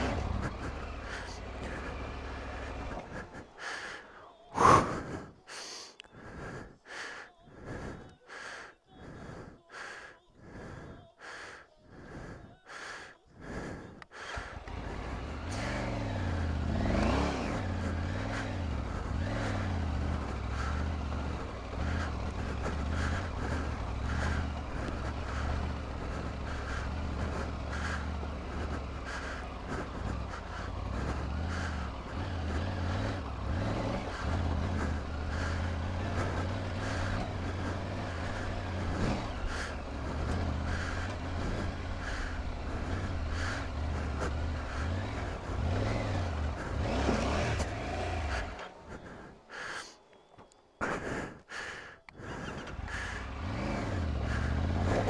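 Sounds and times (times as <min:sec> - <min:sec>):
motorcycle engine revving: 0:00.0 - 0:04.0, 0:14.3 - 0:50.0, 0:52.2 - 0:55.0
loud gasp: 0:00.0 - 0:50.1, 0:50.8 - 0:55.0
heavy rhythmic panting: 0:00.0 - 0:55.0.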